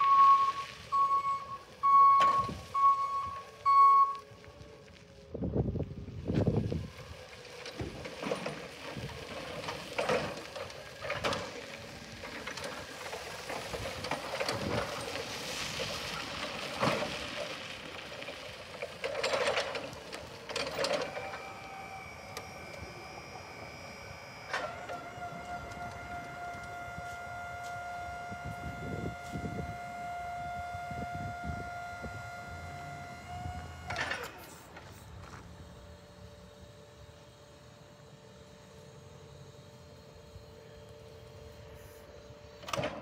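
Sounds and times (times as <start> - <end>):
forklift clunks and rattles: 0.0 - 4.2, 6.3 - 35.4, 42.5 - 43.0
hydraulic pump whine: 0.0 - 43.0.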